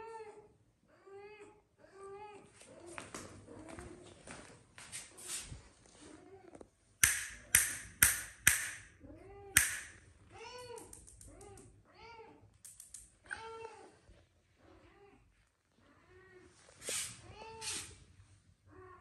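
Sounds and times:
sharp clicks: 0:07.0 - 0:08.8, 0:09.6 - 0:10.0.

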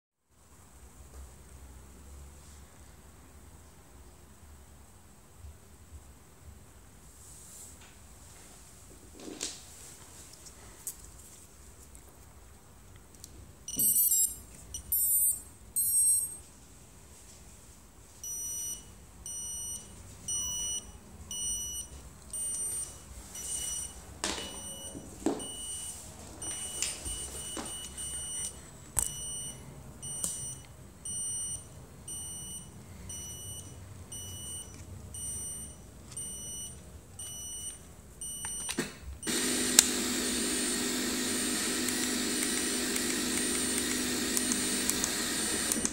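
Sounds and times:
short beeps: 0:13.7 - 0:16.4, 0:18.2 - 0:38.8
motor startup tones: 0:39.2 - 0:45.9.

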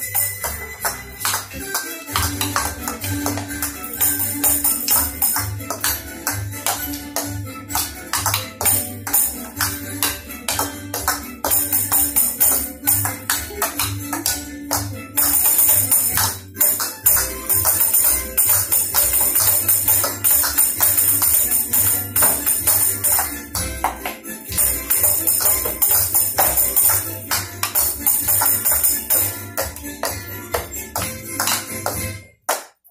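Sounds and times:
tambourine: 0:00.0 - 0:01.4, 0:02.2 - 0:07.4, 0:08.2 - 0:10.2, 0:11.1 - 0:13.8, 0:15.2 - 0:23.6, 0:24.5 - 0:30.8
music with steady beat: 0:00.0 - 0:32.9.

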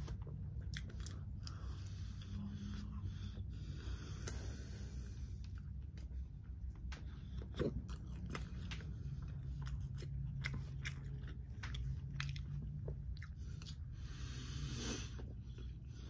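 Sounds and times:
chewing crispy fried chicken: 0:00.0 - 0:03.1, 0:05.2 - 0:14.2
low steady hum: 0:00.0 - 0:16.0.

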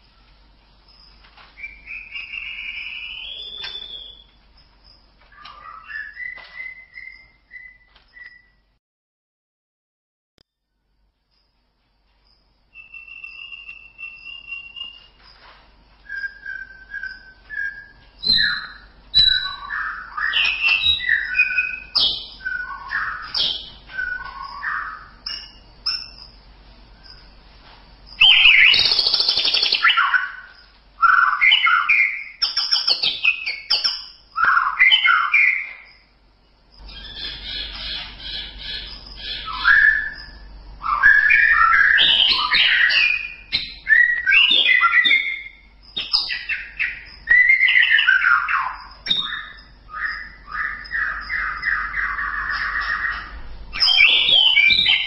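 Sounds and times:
faint low hum: 0:00.0 - 0:08.8
songbird singing: 0:00.0 - 0:08.8, 0:11.3 - 0:55.0.

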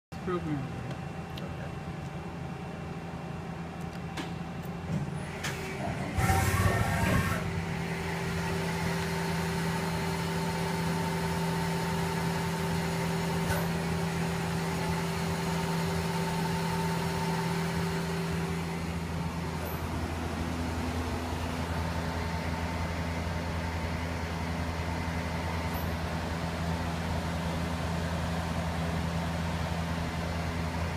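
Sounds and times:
loud machine rattle: 0:05.3 - 0:11.5.

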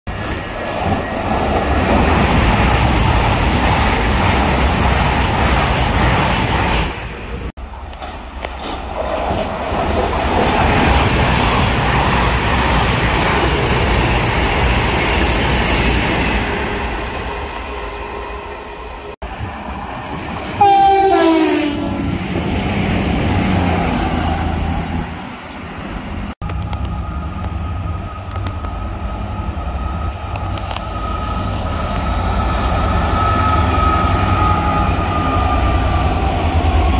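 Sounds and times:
trains rumbling past: 0:00.1 - 0:36.9
train horn blast: 0:20.6 - 0:22.1.

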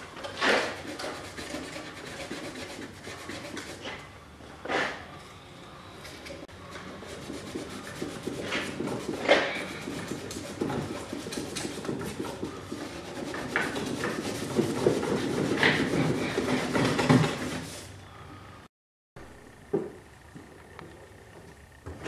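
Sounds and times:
abrasive pad scrubbing metal: 0:00.4 - 0:03.9, 0:06.6 - 0:17.8.

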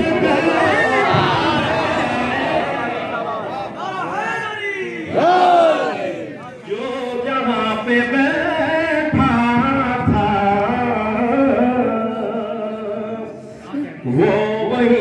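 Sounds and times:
man chanting through loudspeaker: 0:00.0 - 0:02.0, 0:06.6 - 0:15.0.

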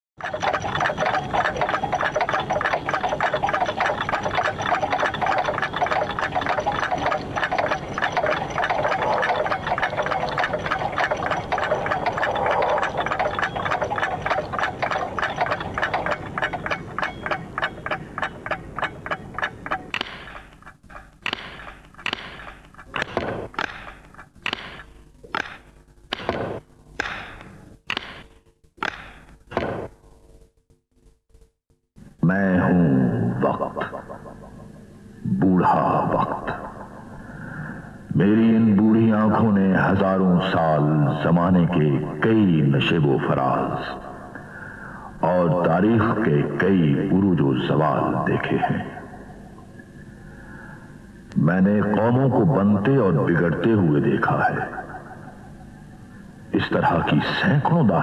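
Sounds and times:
many clocks ticking: 0:00.2 - 0:26.3, 0:51.8 - 0:58.0
single clock ticking: 0:00.2 - 0:26.3.

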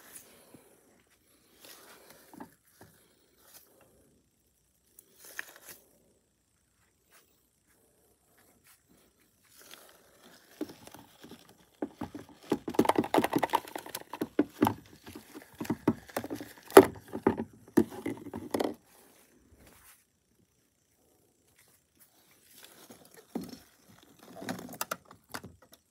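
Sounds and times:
plastic toys rattling in bucket: 0:10.4 - 0:18.8.

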